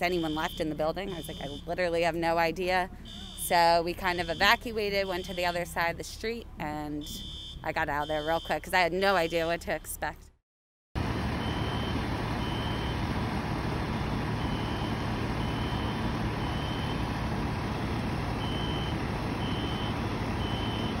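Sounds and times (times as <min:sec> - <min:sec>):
engine hum: 0:11.0 - 0:21.0.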